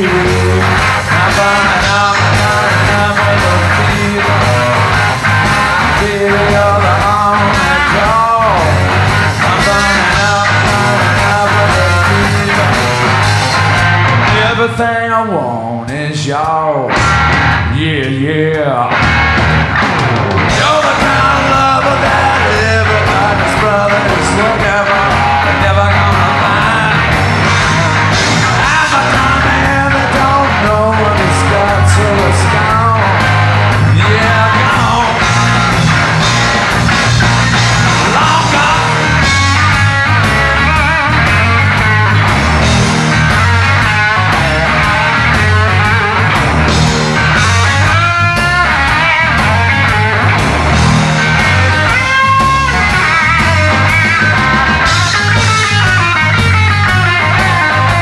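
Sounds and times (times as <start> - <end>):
blues-rock band playing live: 0.0 - 58.0
electric guitar bending notes: 0.0 - 58.0.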